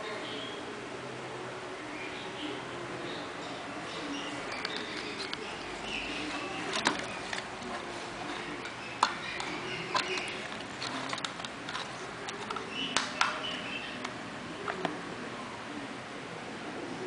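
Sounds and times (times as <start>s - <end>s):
plastic fairy lights clicking: 8.6s - 14.2s.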